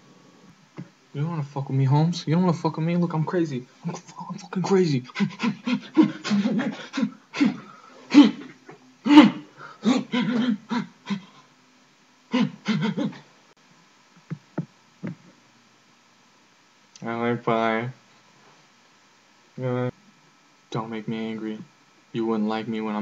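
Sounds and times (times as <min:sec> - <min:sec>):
man making wild vocal noises: 0:03.8 - 0:11.4, 0:12.3 - 0:13.2.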